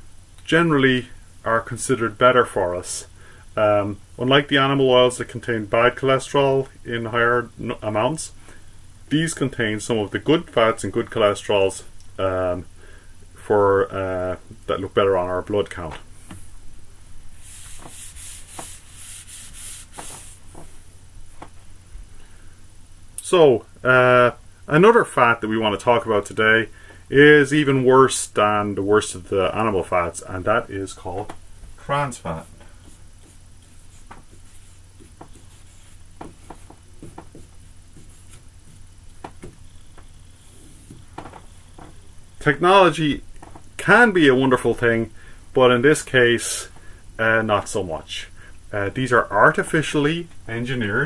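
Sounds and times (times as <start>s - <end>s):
eraser rubbing on whiteboard: 17.3s - 20.9s, 32.3s - 38.8s, 40.3s - 41.7s.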